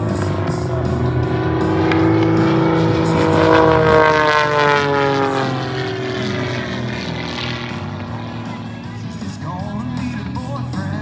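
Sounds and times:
propeller airplane flying past: 0.0s - 11.0s.

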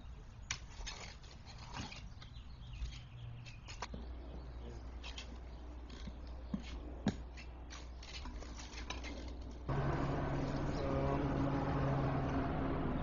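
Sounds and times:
steady low hum: 4.0s - 13.0s.

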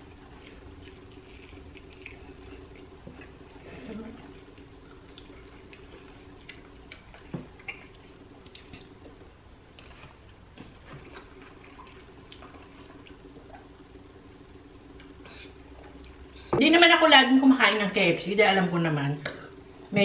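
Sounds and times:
chewing crispy fried chicken: 0.0s - 9.2s, 9.8s - 16.3s
steady low hum: 0.0s - 20.0s.

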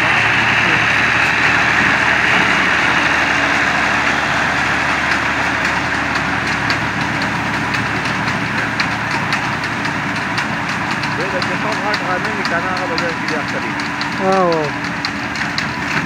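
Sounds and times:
tractor engine running under load: 0.0s - 16.0s
light rapid clicking: 6.6s - 16.0s.

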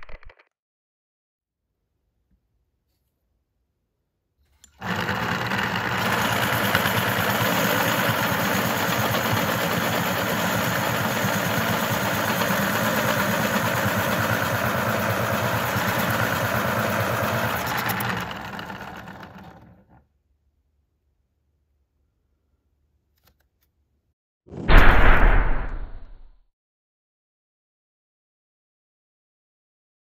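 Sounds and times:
electric pencil sharpener grinding: 4.6s - 20.0s.

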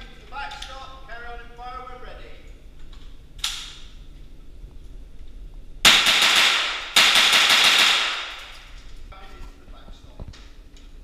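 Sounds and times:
rifle shots ringing: 5.9s - 8.6s.

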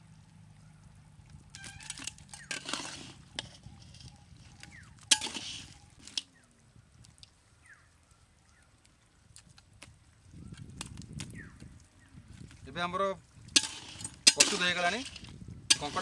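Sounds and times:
metal ladle scraping iron pot: 1.6s - 6.3s, 13.5s - 16.0s.

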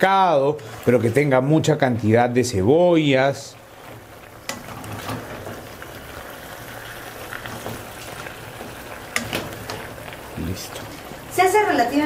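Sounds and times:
food sizzling in a pot: 0.0s - 12.0s.

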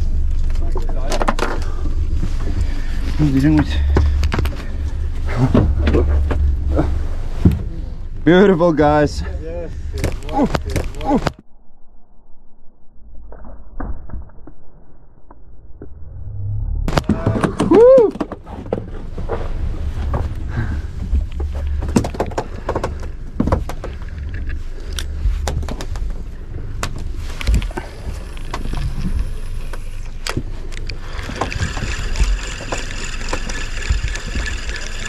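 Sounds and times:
boat engine rumble: 0.0s - 11.4s, 15.8s - 35.0s
person shouting: 10.2s - 11.3s, 17.0s - 18.2s.

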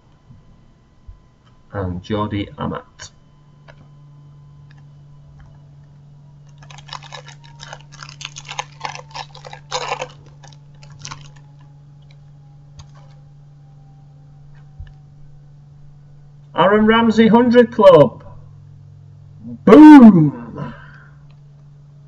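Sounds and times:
low hum: 0.0s - 22.0s
foil wrapper crinkling: 6.4s - 13.2s.

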